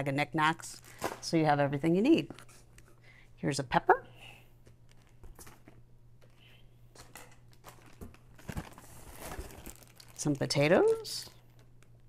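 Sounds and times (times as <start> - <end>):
food packaging crinkling: 4.6 - 5.8, 7.4 - 12.0.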